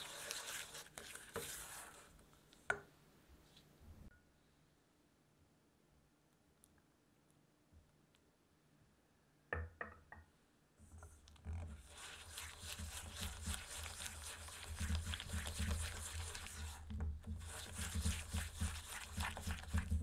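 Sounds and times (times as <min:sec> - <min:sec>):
spatula scraping batter in bowl: 0:00.0 - 0:02.2, 0:11.6 - 0:20.0.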